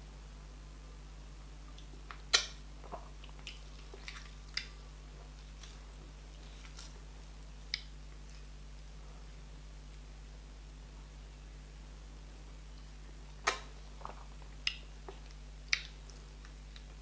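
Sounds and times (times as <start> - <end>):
soft squishes of food pinched by hand: 1.7 - 8.9, 13.4 - 17.0.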